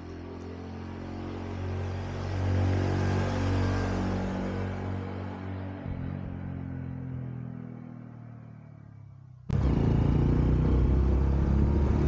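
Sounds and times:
motorcycle engine running: 9.5s - 12.0s.

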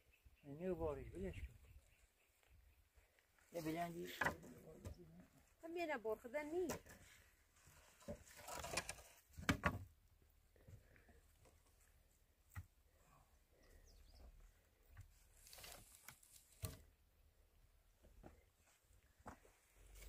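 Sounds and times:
knocks of wooden poles: 4.0s - 5.0s, 8.0s - 10.0s.

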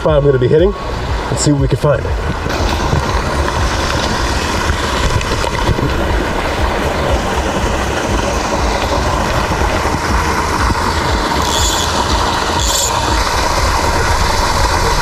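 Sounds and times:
small waterfall rushing: 0.0s - 15.0s
fly reel clicking buzz: 10.2s - 14.1s.

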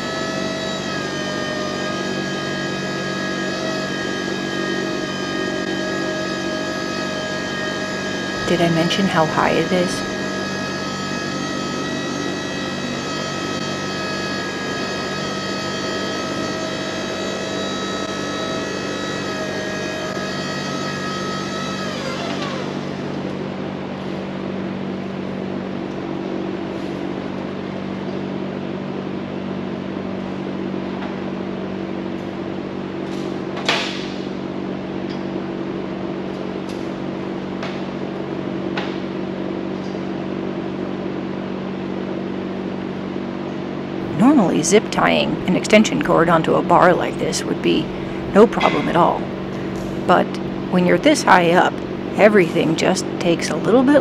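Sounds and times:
electric lift motor whining: 0.0s - 35.2s, 43.9s - 54.0s
low hum: 44.0s - 54.0s.

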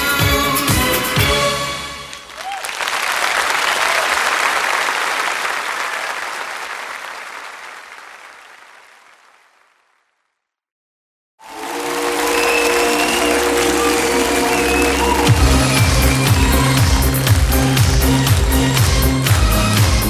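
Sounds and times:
audience applauding: 1.9s - 10.4s, 11.4s - 20.0s
synth-pop song: 13.3s - 20.0s.

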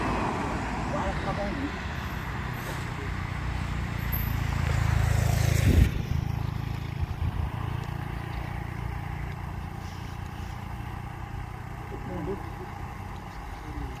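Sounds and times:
truck diesel engine running: 0.0s - 14.0s.

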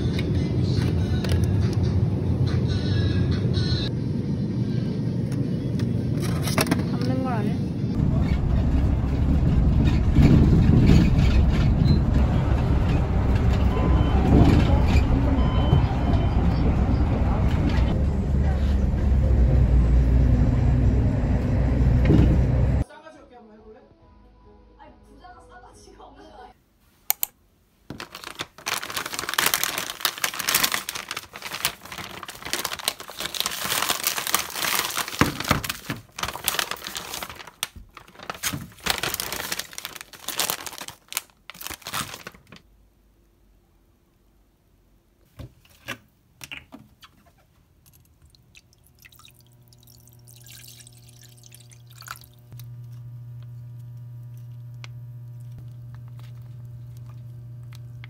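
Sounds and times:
plastic packaging crinkling: 27.9s - 42.6s, 49.0s - 58.0s
low electric hum: 47.8s - 58.0s
water pouring into pot: 48.4s - 52.5s.

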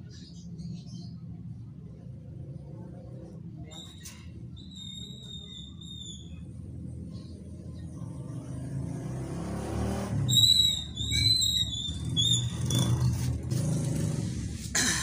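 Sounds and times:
vehicle engine running: 11.8s - 15.0s.

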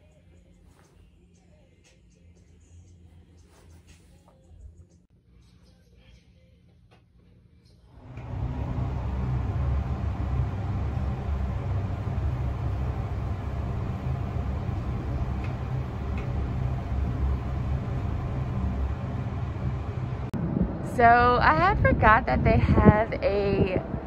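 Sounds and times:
elevator rumble and hum: 7.9s - 24.0s.

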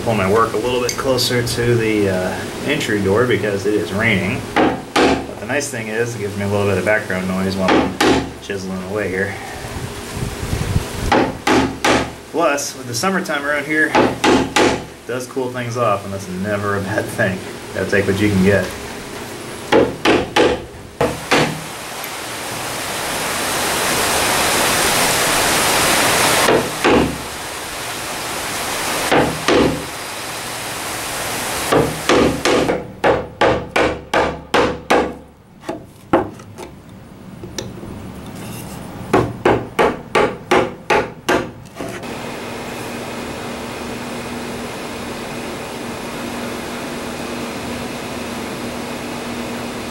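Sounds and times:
rain hissing: 0.0s - 19.8s, 20.7s - 32.7s, 42.0s - 49.9s
hammer striking chisel into wood: 4.6s - 5.3s, 7.7s - 8.3s, 11.1s - 12.1s, 13.9s - 14.9s, 19.7s - 21.6s, 26.5s - 27.2s, 29.1s - 29.8s, 31.7s - 36.3s, 39.1s - 41.6s.

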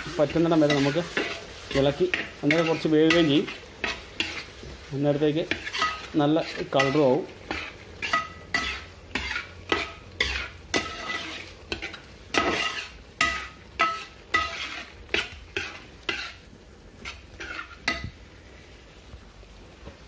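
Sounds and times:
light sizzle: 0.0s - 20.0s
spoon clinking in a pan: 6.8s - 16.3s.

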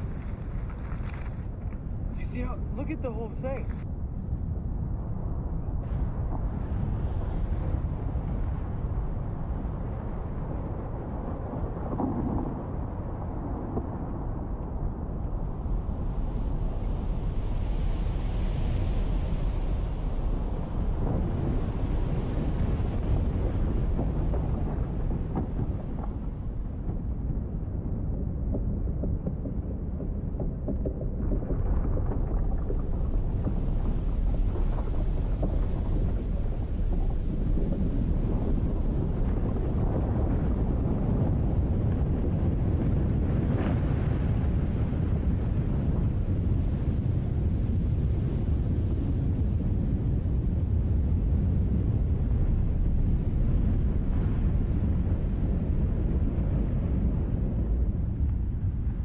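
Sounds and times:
ice cracking and crunching: 0.0s - 1.8s
rumble of glacier ice collapsing: 0.0s - 59.0s.

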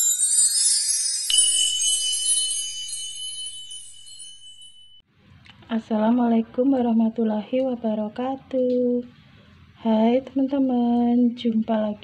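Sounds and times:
shimmering high chimes: 0.0s - 5.0s
steady high ringing tone: 0.0s - 5.0s.

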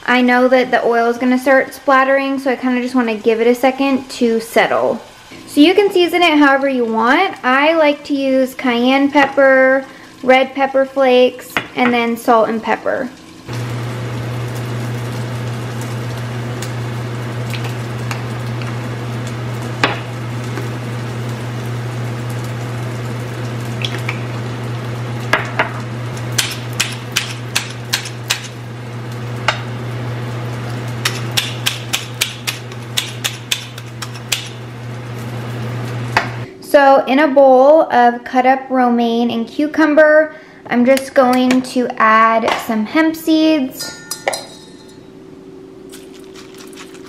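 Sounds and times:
chickpeas sizzling in oil: 1.4s - 36.5s, 45.9s - 47.0s
pepper grinder grinding: 31.0s - 34.6s, 45.9s - 47.0s
spice shaker clicks and taps: 31.0s - 34.6s
steady low hum: 39.9s - 47.0s.

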